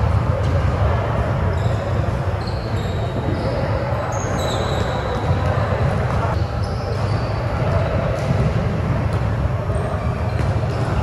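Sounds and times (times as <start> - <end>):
sneakers squeaking on hardwood floor: 1.5 - 7.8, 9.7 - 11.0.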